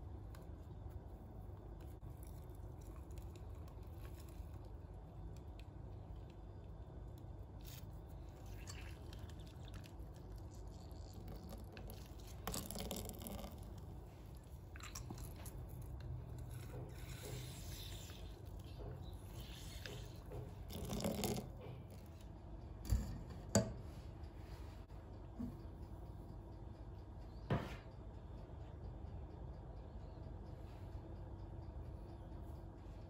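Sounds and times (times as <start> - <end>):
orange squishing on juicer: 1.8 - 6.4, 7.1 - 22.2.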